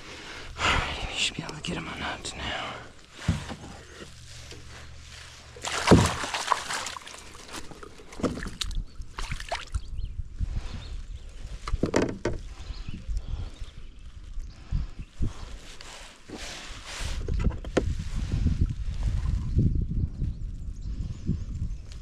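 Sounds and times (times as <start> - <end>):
fish thrashing in a net: 4.1 - 9.8
water splashing: 5.2 - 9.8.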